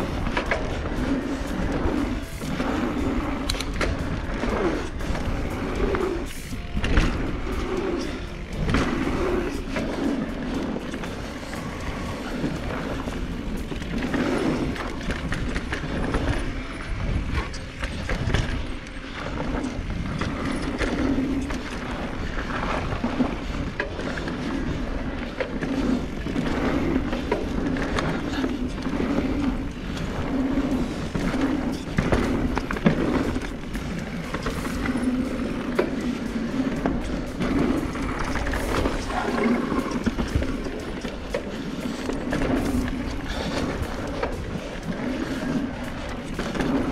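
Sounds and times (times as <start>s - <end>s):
bike knocks and rattles: 0.0s - 46.9s
tyres rolling over dirt: 0.0s - 46.9s
wind on microphone: 0.0s - 46.9s.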